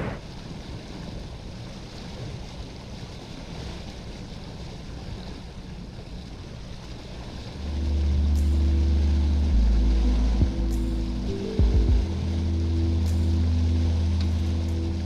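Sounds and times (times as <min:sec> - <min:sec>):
water washing around boat: 0:00.0 - 0:15.0
wind: 0:00.0 - 0:15.0
background music with deep bass: 0:07.5 - 0:15.0.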